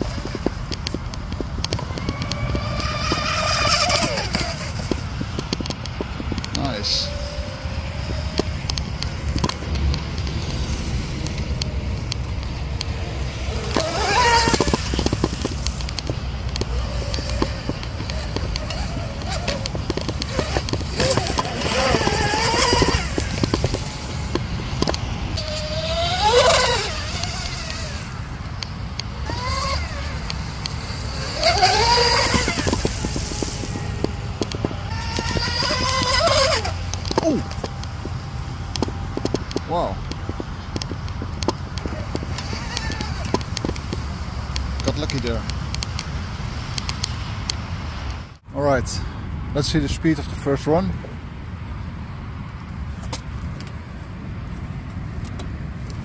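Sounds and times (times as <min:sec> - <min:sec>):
electric motors whining: 0:00.0 - 0:44.1
wind buffeting on microphone: 0:00.0 - 0:56.0
water spray hiss: 0:32.8 - 0:34.0.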